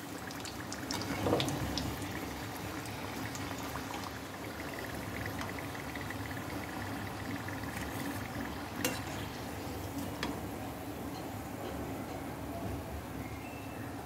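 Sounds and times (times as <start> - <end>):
food deep-frying in oil: 0.0 - 10.4.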